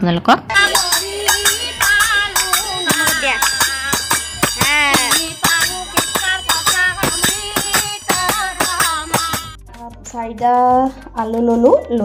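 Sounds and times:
woman's lead voice: 0.0s - 12.0s
hand cymbals struck: 0.5s - 9.6s
women singing: 0.5s - 9.6s.

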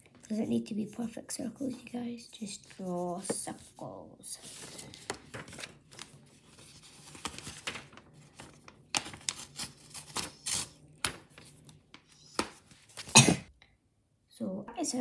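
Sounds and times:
paper and pencil handled on table: 2.6s - 3.8s.

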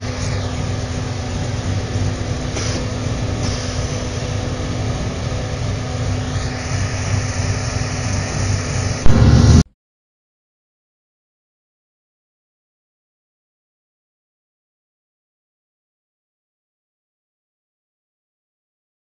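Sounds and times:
engine idling with choppy rumble: 0.0s - 9.6s
engine revving hard: 9.0s - 9.6s.

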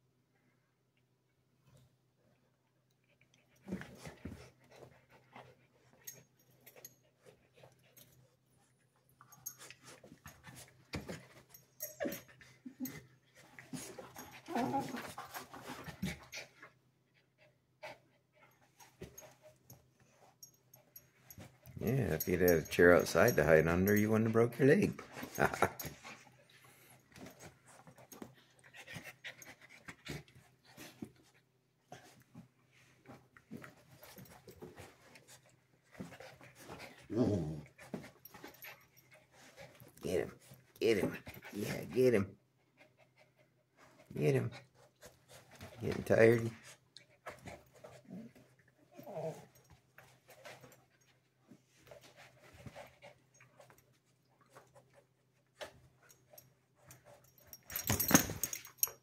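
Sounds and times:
dogs panting: 3.5s - 32.4s.

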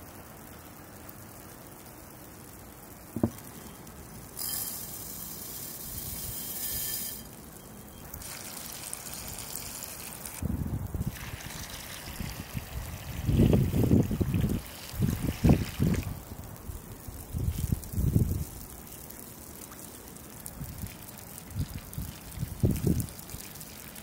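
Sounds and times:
water splashing onto lentils: 0.0s - 24.0s
steady hiss: 0.7s - 11.0s
sharp clink: 4.4s - 7.3s.

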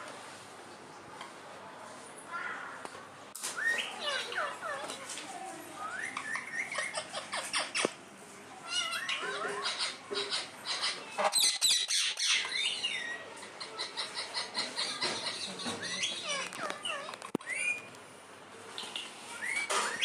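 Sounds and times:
squawks and whistles: 3.5s - 4.1s, 5.8s - 6.7s, 19.3s - 20.0s
parakeets chattering: 3.6s - 5.0s, 5.8s - 8.0s, 8.6s - 17.9s.

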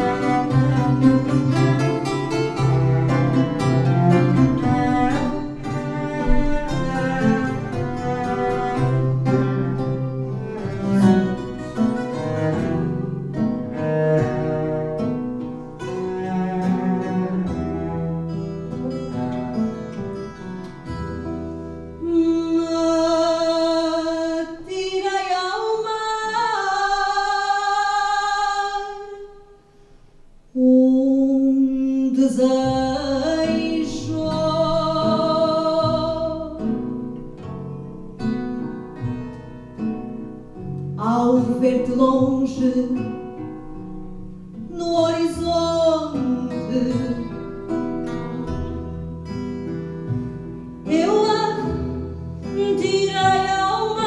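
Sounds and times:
acoustic band playing: 0.0s - 24.7s, 31.7s - 54.0s
woman singing with vibrato: 22.0s - 29.6s, 30.6s - 36.7s, 41.0s - 43.2s, 44.6s - 48.6s, 50.8s - 54.0s.

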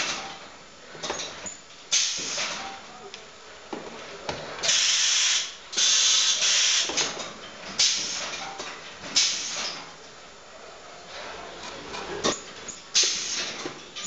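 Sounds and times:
compressed air hissing: 4.6s - 6.9s, 13.0s - 13.6s.

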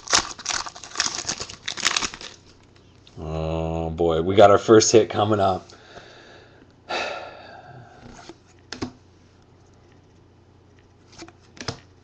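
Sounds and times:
trading cards rustling: 0.0s - 2.8s.

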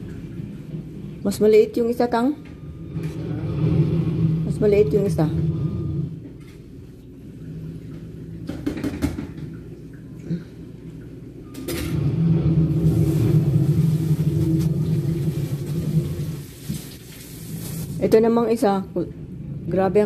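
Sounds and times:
diesel engine working: 11.8s - 16.5s.

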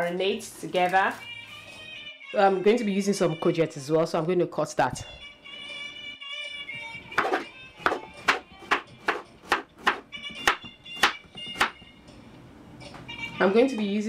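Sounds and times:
knife chopping on wooden board: 7.2s - 11.8s.

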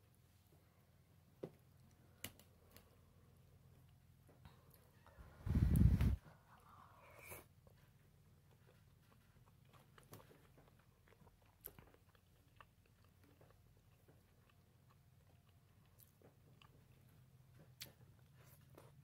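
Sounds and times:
person chewing food: 6.5s - 19.0s.

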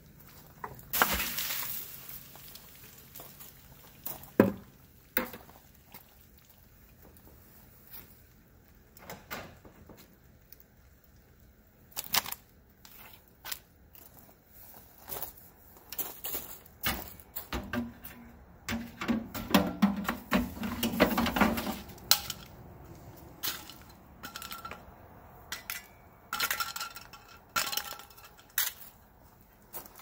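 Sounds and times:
metallic clinks and crackles: 23.4s - 29.1s.

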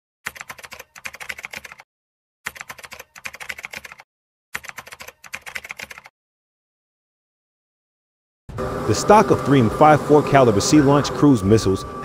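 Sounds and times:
rapid keyboard key clicks: 0.3s - 1.8s, 2.5s - 4.0s, 4.6s - 6.1s.

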